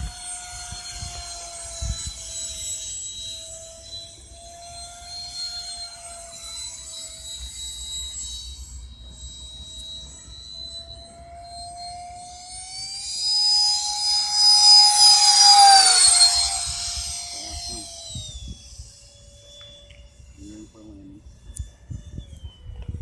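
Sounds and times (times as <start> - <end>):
model jet fan whining: 0.0 - 23.0.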